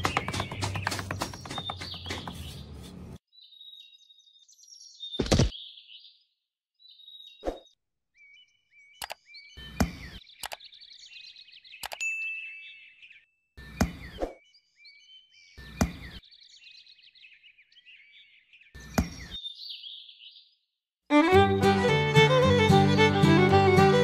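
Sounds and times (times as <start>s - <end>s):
scraping knocks in sand: 0.0s - 3.2s
birds chirping: 0.0s - 21.4s
music: 21.1s - 24.0s.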